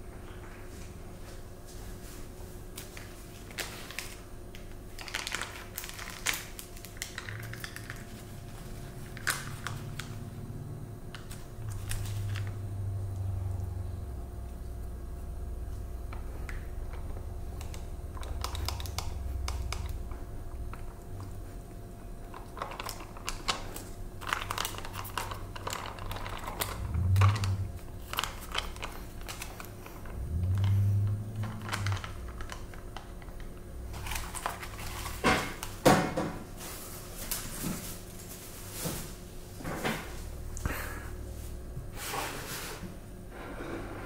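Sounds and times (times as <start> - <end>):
foil pouch crinkling: 2.9 - 10.1, 22.2 - 30.2
low muffled swells: 26.7 - 28.5.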